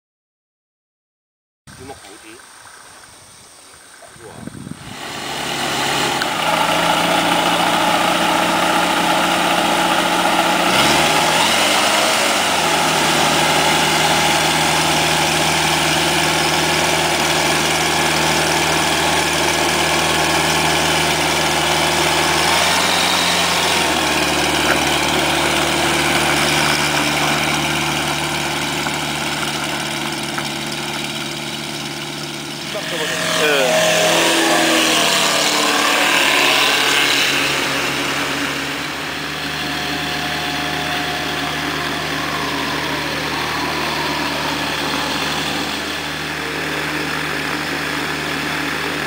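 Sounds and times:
light aircraft engine running: 4.0s - 49.0s.

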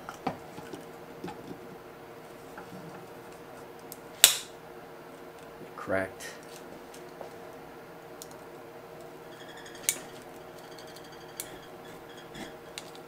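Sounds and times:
pliers clicking and metal creaking: 9.7s - 13.0s.

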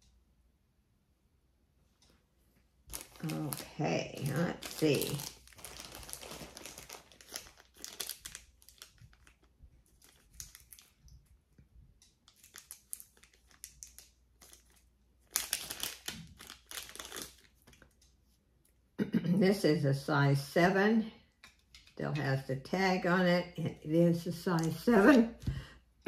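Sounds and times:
wrapping crinkling: 2.9s - 18.1s, 24.3s - 25.5s.

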